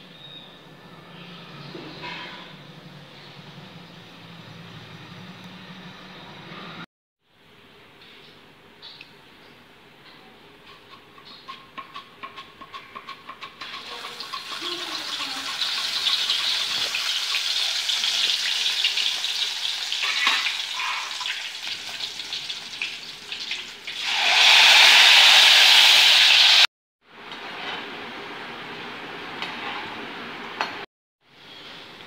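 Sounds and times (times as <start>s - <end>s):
slices sizzling in hot oil: 13.0s - 26.7s.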